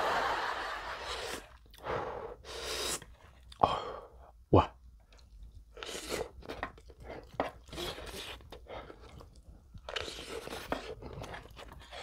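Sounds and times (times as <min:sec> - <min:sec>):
slurping noodles: 0:00.8 - 0:01.8, 0:02.4 - 0:03.1, 0:05.8 - 0:09.2, 0:09.9 - 0:12.0.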